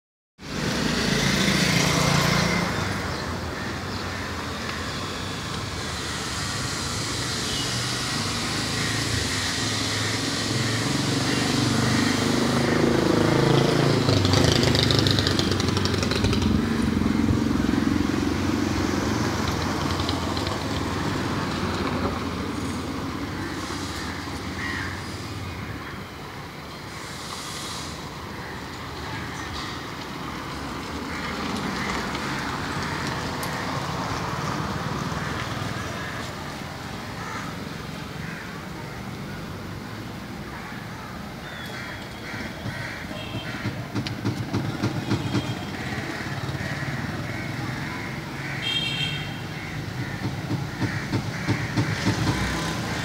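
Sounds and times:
vehicle engine running close by: 0:00.4 - 0:25.9, 0:42.2 - 0:53.0.

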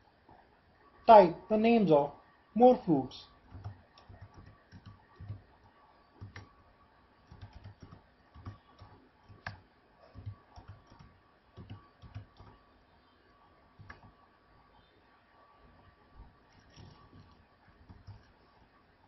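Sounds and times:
keyboard typing clicks: 0:03.4 - 0:06.5, 0:07.2 - 0:12.6, 0:13.8 - 0:14.1, 0:16.5 - 0:18.4.

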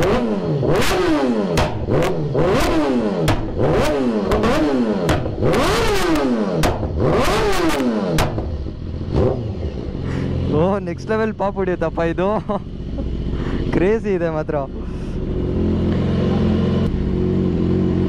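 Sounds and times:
motorcycle engine revving: 0:00.0 - 0:18.0
exhaust pops and cracks: 0:01.6 - 0:03.6, 0:04.2 - 0:08.6.

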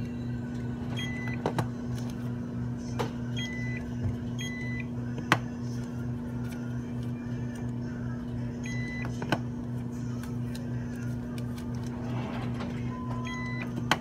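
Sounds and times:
steady low hum: 0:00.0 - 0:14.0
barcode scanner beeping: 0:01.0 - 0:01.4, 0:03.4 - 0:04.9, 0:08.6 - 0:09.2, 0:12.9 - 0:13.9.

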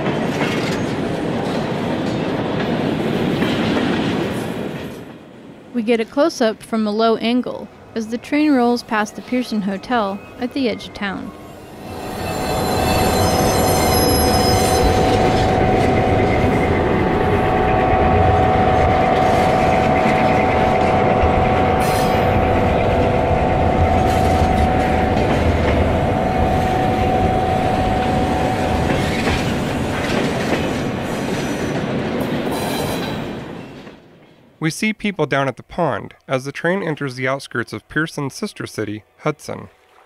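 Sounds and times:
model locomotive tone: 0:06.0 - 0:30.5.

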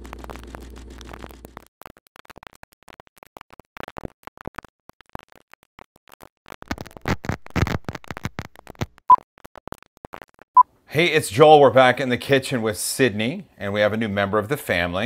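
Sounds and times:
low hum: 0:00.0 - 0:01.6
film crackle clicks and pops: 0:00.0 - 0:10.7.

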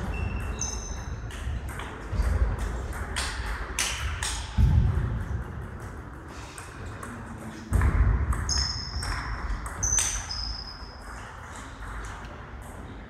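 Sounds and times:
shoes squeaking on gym floor: 0:00.0 - 0:01.2.

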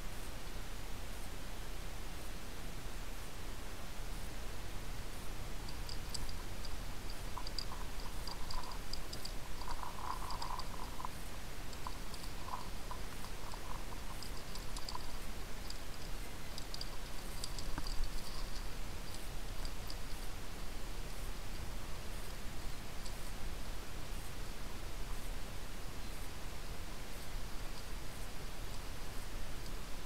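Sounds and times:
light clicks and rattles: 0:05.6 - 0:20.4.

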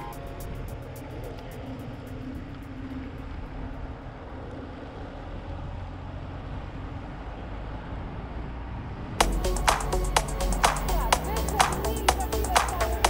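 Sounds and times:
fast regular ticking: 0:00.0 - 0:04.1, 0:09.2 - 0:13.0
bicycle riding noise and wind: 0:00.0 - 0:09.2.

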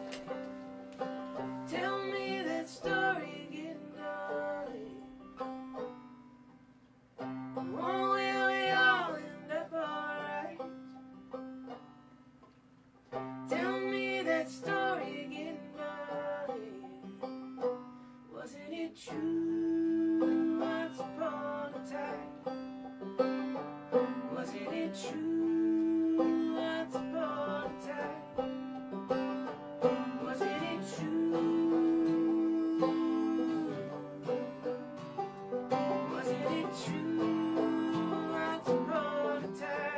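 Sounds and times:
banjo and acoustic guitar folk music: 0:00.0 - 0:39.9
person singing: 0:01.6 - 0:05.2, 0:07.6 - 0:10.7, 0:13.5 - 0:17.1, 0:18.4 - 0:22.3, 0:24.3 - 0:28.4, 0:30.2 - 0:34.8, 0:35.9 - 0:39.9.

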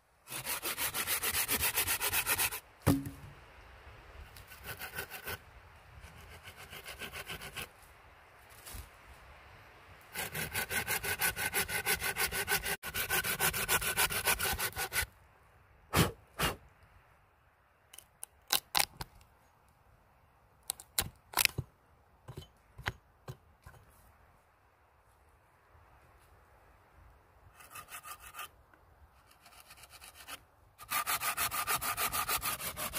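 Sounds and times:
hand saw cutting log: 0:00.3 - 0:03.1, 0:04.5 - 0:05.4, 0:06.2 - 0:07.7, 0:10.1 - 0:15.1, 0:15.9 - 0:16.6, 0:27.6 - 0:28.5, 0:29.2 - 0:32.9
axe chopping wood: 0:02.8 - 0:03.3.

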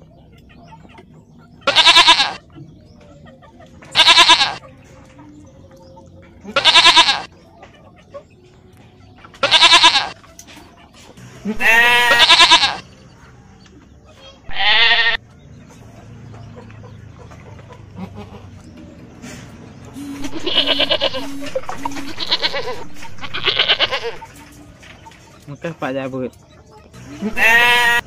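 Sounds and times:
goats bleating: 0:01.6 - 0:02.4, 0:04.0 - 0:04.6, 0:06.4 - 0:07.3, 0:09.4 - 0:10.2, 0:11.4 - 0:12.8, 0:14.5 - 0:15.2, 0:20.0 - 0:24.2, 0:27.2 - 0:28.0.

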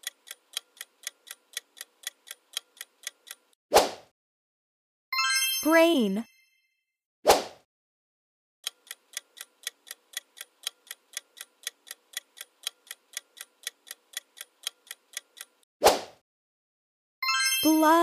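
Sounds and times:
clock ticking: 0:00.0 - 0:03.6, 0:08.6 - 0:15.7.

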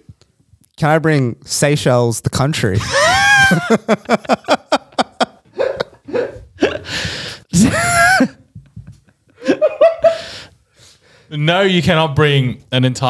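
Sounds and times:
men laughing hard: 0:02.8 - 0:10.5.

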